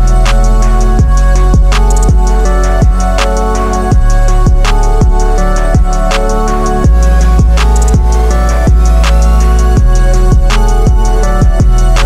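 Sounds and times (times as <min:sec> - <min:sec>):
held chords: 0:00.0 - 0:12.0
hi-hat ticks: 0:00.0 - 0:12.0
kick drum with falling pitch: 0:01.0 - 0:03.0, 0:03.9 - 0:05.2, 0:05.8 - 0:06.0, 0:06.8 - 0:09.1, 0:09.8 - 0:11.8.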